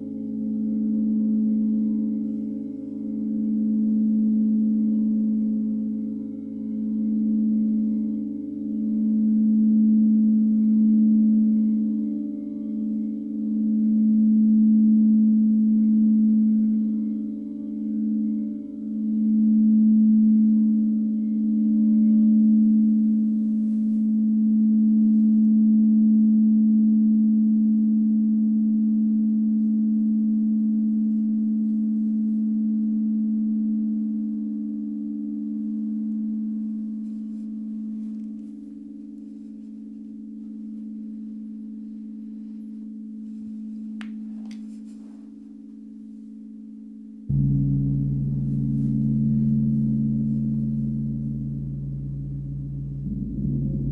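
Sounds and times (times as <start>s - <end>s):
singing bowl hum: 0.0s - 44.0s, 47.3s - 53.9s
gong struck with soft mallet: 47.3s - 53.9s.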